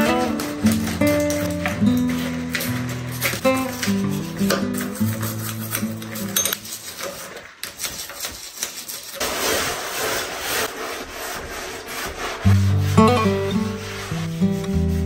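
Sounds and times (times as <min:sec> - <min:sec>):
acoustic guitar music: 0:00.0 - 0:06.4, 0:12.4 - 0:15.0
hand rubbing foamy glass: 0:00.0 - 0:15.0.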